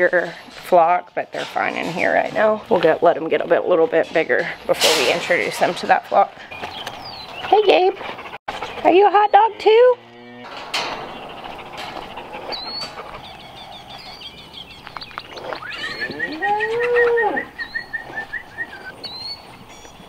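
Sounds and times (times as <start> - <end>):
birds chirping: 2.0 - 20.0
cow mooing: 9.4 - 13.0, 15.6 - 17.6.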